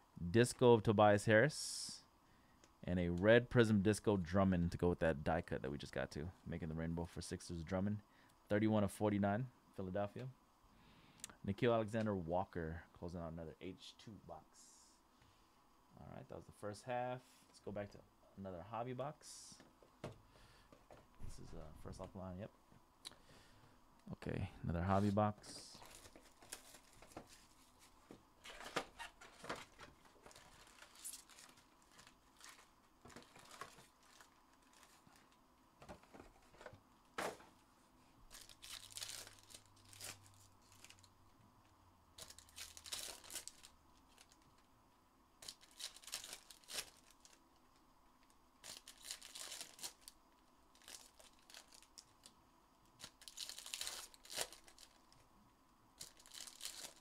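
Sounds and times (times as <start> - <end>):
wrappers tearing and crinkling: 25.7 - 35.4, 38.2 - 41.1, 42.2 - 44.6, 45.4 - 47.4, 48.6 - 52.4, 53.0 - 55.1, 56.0 - 57.0.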